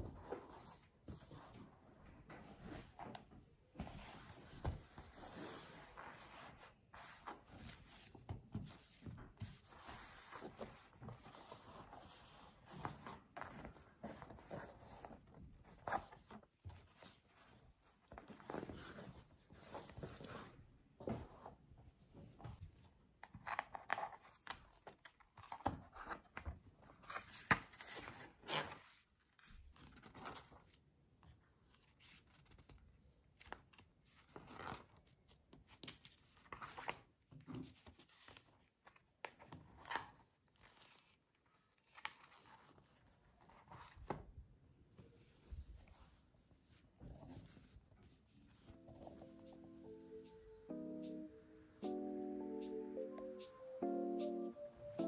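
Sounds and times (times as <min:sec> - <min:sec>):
notebook handling: 0:23.2 - 0:28.9, 0:33.4 - 0:44.3, 0:44.9 - 0:50.0.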